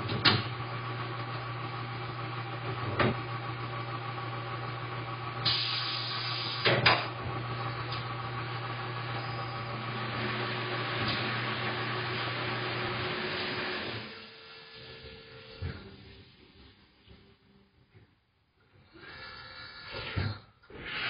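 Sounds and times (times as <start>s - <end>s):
air hissing: 5.4s - 6.8s.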